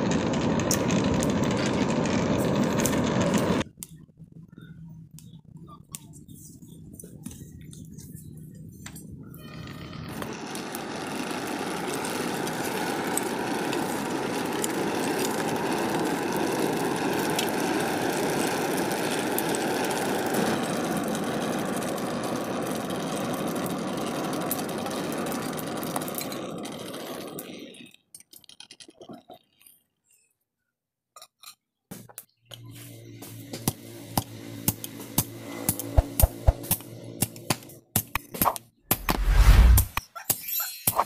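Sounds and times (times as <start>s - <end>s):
forge blower roaring: 0.0s - 3.9s, 9.6s - 27.3s, 32.8s - 37.9s.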